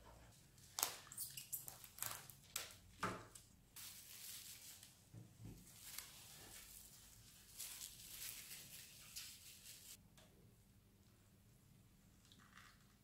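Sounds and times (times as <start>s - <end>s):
cling film crinkling: 5.8s - 10.0s.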